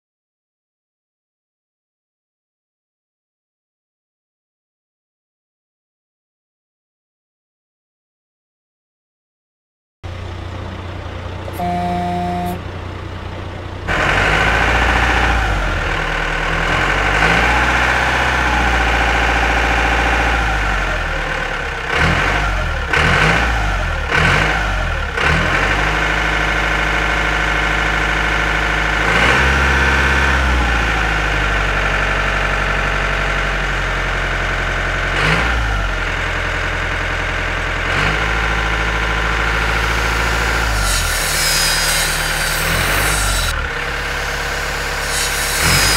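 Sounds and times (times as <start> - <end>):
heavy engine running: 10.1 - 45.9
brief pitched tone: 11.5 - 12.7.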